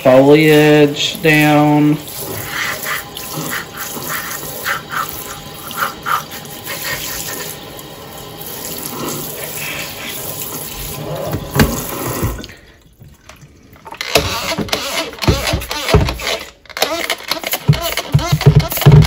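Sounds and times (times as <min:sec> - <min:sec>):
sink sprayer spraying water: 0:00.0 - 0:12.7, 0:13.9 - 0:19.0.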